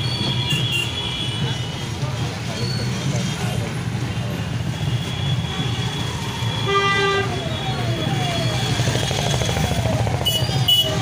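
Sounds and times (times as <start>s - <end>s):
traffic engines rumbling: 0.0s - 11.0s
vehicle horn tooting: 10.3s - 11.0s.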